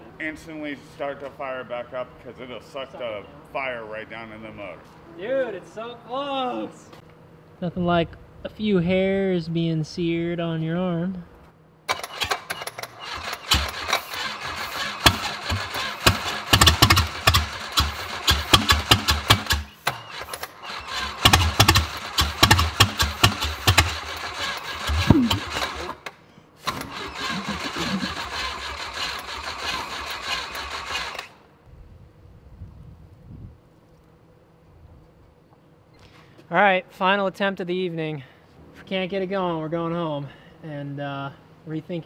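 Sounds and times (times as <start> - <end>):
engine cranking on starter: 11.9 - 31.4
engine firing in uneven bursts: 11.9 - 31.4.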